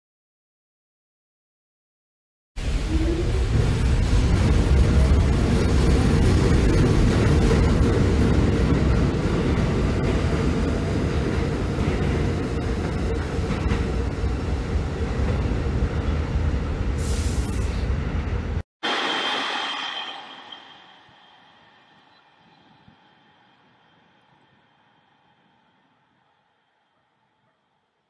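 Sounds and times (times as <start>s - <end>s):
subway train wheels rumbling on rails: 2.6s - 18.6s.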